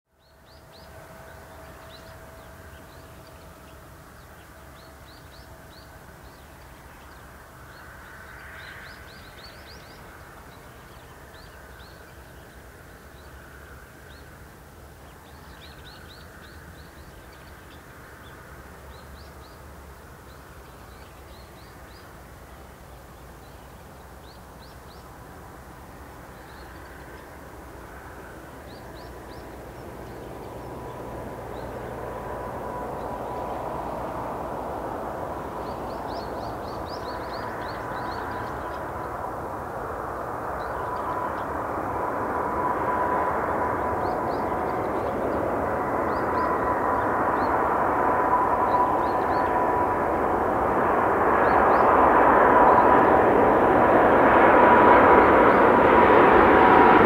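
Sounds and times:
low outdoor rumble: 0:00.1 - 0:57.0
jet engines approaching: 0:00.2 - 0:57.0
small birds chirping: 0:35.4 - 0:39.3.

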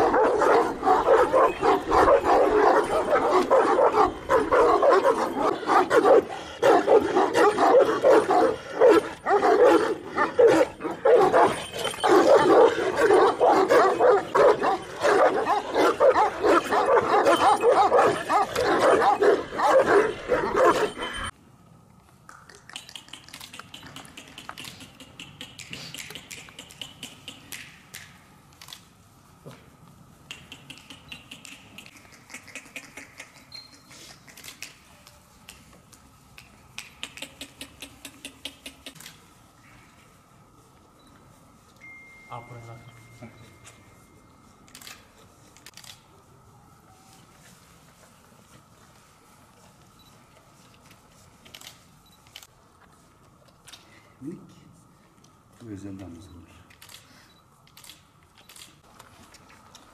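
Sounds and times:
dogs barking together: 0:00.0 - 0:21.3
faint ticks and rustles: 0:28.5 - 0:59.9.

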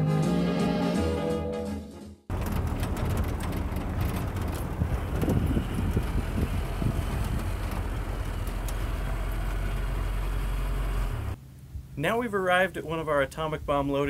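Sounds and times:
wind noise on microphone: 0:02.3 - 0:09.7
jeep engine running: 0:02.3 - 0:11.4.

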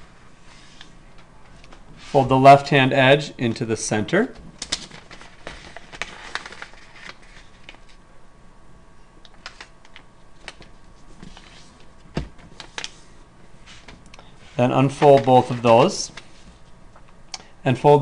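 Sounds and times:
paper rustling and crinkling: 0:04.6 - 0:08.0, 0:09.4 - 0:13.1, 0:13.7 - 0:16.8.

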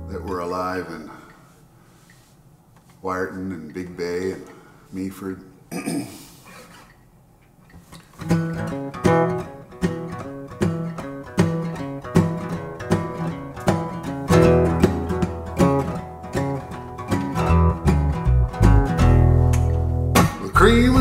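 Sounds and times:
acoustic guitar strumming: 0:08.1 - 0:21.0
low notes: 0:17.4 - 0:21.0.

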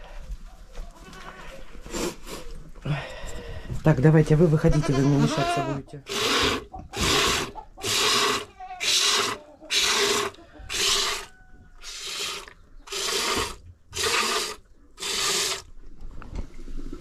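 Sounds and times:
milk hissing into pail: 0:06.1 - 0:15.7.

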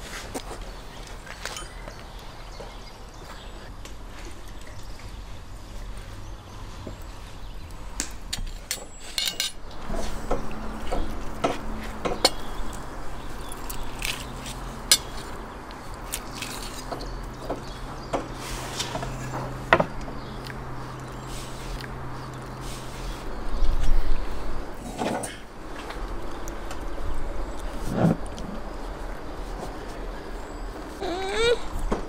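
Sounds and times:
cutlery scraping ceramic plates: 0:08.7 - 0:10.4.

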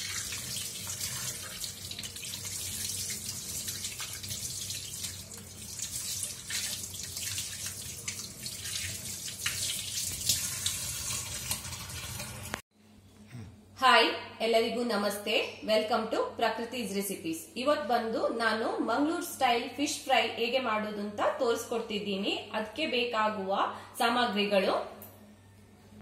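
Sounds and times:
tap water running into metal sink: 0:00.0 - 0:12.6.

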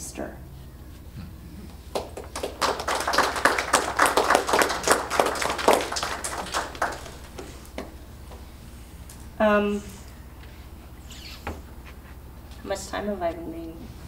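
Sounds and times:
small audience applauding: 0:01.9 - 0:08.0.

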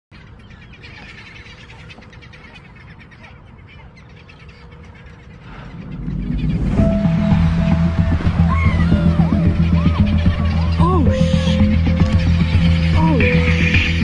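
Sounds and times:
seabirds calling: 0:00.1 - 0:14.0
low rumble of wind and water: 0:00.3 - 0:14.0
loud low sound: 0:05.4 - 0:14.0.

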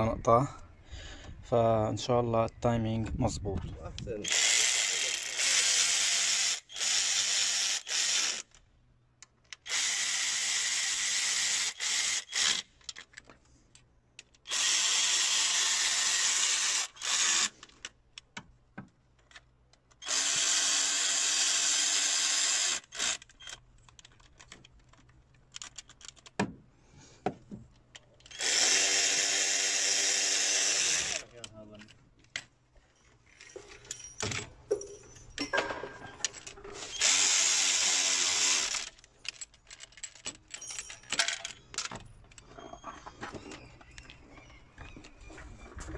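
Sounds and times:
cordless power tool whining: 0:04.2 - 0:08.5, 0:14.5 - 0:17.6, 0:20.0 - 0:23.6, 0:28.3 - 0:31.2, 0:36.8 - 0:39.0.

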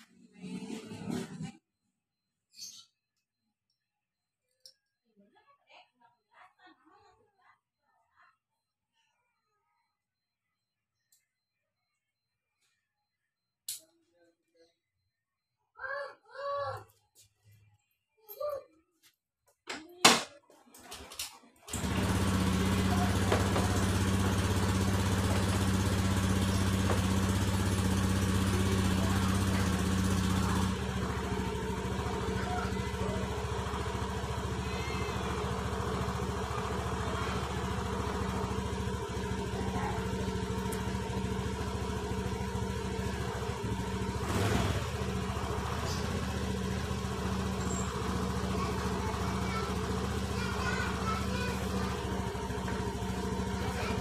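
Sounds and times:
small engine running: 0:21.7 - 0:54.0.

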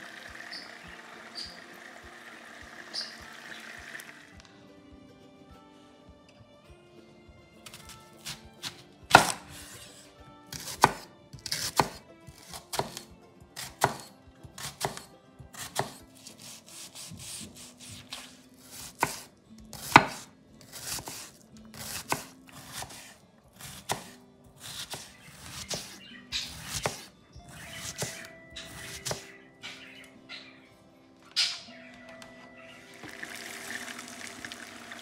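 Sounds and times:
knife slicing with crunch: 0:07.7 - 0:29.2
knife chopping on cutting board: 0:07.7 - 0:29.3.

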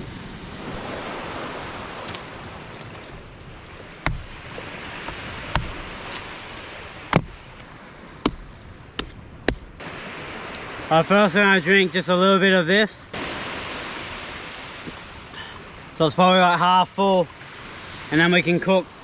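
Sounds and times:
surf: 0:00.0 - 0:19.0
wind: 0:00.0 - 0:19.0
machete chopping coconut husk: 0:04.0 - 0:04.4, 0:05.0 - 0:06.3, 0:07.1 - 0:07.5, 0:08.2 - 0:09.8.

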